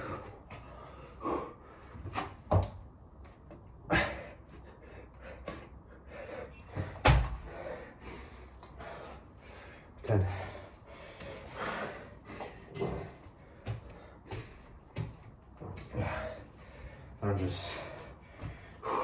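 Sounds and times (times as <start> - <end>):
hard breathing: 0.0 - 2.1, 3.9 - 19.0
dull thuds on exercise mat: 6.8 - 7.4.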